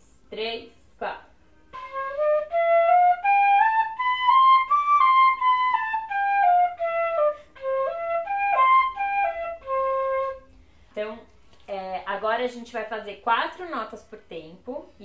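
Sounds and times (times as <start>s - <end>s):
fife playing scales: 1.5s - 10.8s.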